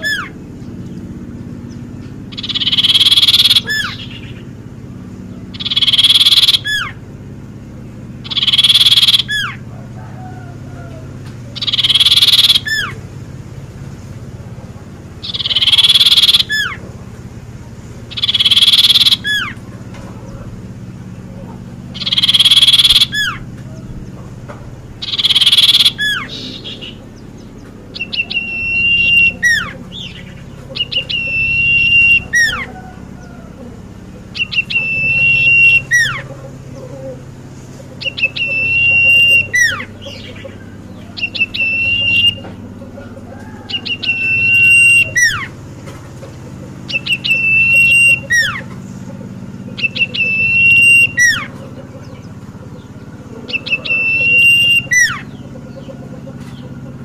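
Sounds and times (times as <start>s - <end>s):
bird singing whistled phrase: 2.4s - 4.3s, 5.6s - 6.9s, 8.3s - 9.6s, 11.6s - 13.0s, 15.2s - 16.8s, 18.1s - 19.5s, 22.0s - 23.4s, 25.0s - 27.0s, 28.0s - 30.2s, 30.8s - 32.7s, 34.4s - 36.2s, 38.0s - 39.9s, 41.2s - 42.5s, 43.8s - 45.5s, 46.9s - 48.7s, 49.8s - 51.5s, 53.5s - 55.4s.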